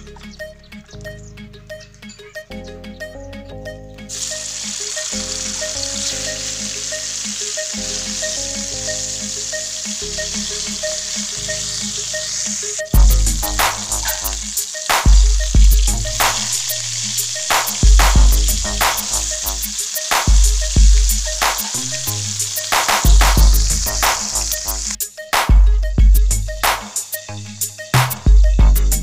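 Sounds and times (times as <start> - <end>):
background music: 0.0 - 29.0
chicken sizzling in oil: 4.1 - 25.0.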